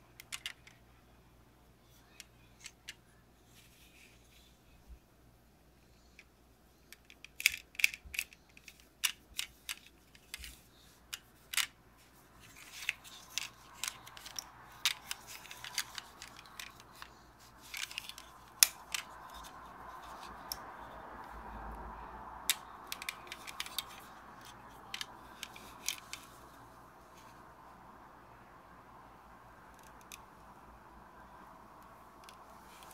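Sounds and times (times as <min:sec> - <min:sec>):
soft rubbing: 0:03.4 - 0:05.0, 0:08.7 - 0:21.3.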